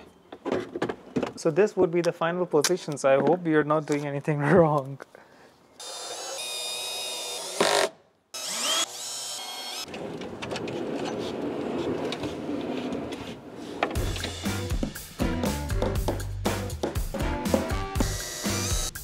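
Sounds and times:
power drill whining: 5.8s - 10.0s, 18.0s - 18.9s
drawer slides rolling and rattling: 9.9s - 14.4s
background music with steady beat: 14.0s - 19.0s.

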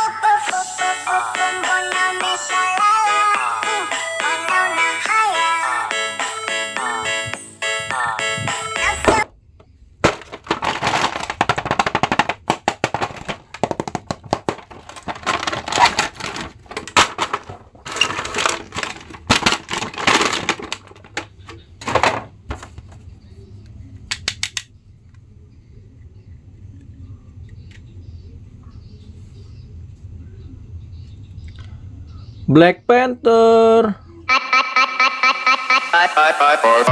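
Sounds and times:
cardboard and plastic crackling: 10.0s - 23.0s.

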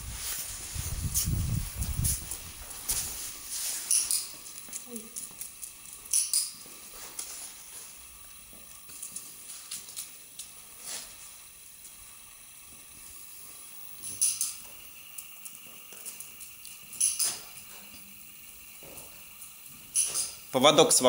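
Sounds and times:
footsteps on tiled floor: 0.0s - 12.0s, 15.6s - 16.3s, 18.7s - 19.2s
faint steady hiss: 0.0s - 21.0s.

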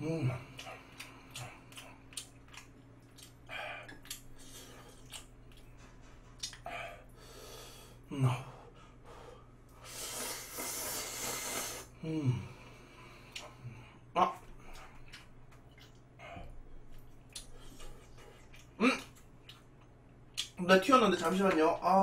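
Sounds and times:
person chewing: 0.2s - 7.2s, 14.3s - 20.6s
heavy breaths: 5.7s - 15.0s
noisy slurp of noodles: 10.0s - 11.9s.

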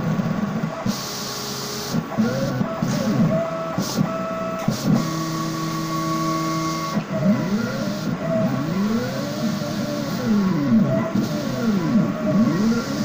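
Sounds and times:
stepper motors whining: 2.2s - 13.0s.

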